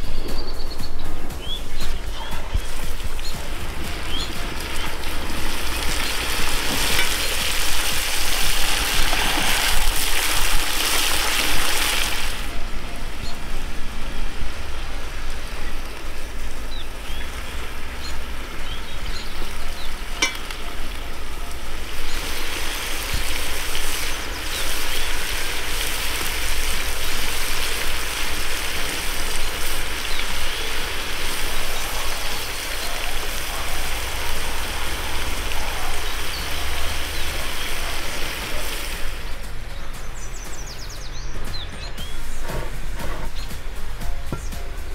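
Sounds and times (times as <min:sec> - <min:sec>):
metal skimmer scraping: 0:02.0 - 0:11.5, 0:20.1 - 0:21.0
meat sizzling: 0:02.4 - 0:12.5, 0:13.8 - 0:39.2.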